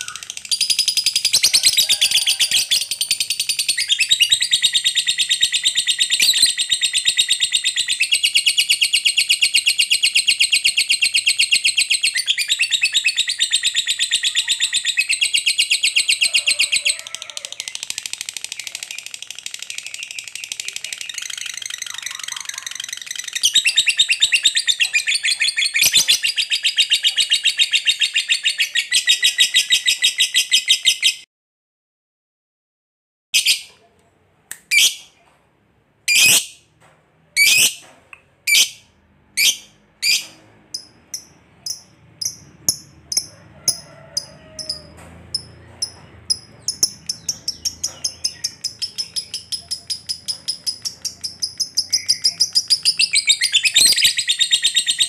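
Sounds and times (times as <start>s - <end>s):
lovebird chattering trill: 17.7s - 31.1s, 39.4s - 55.0s.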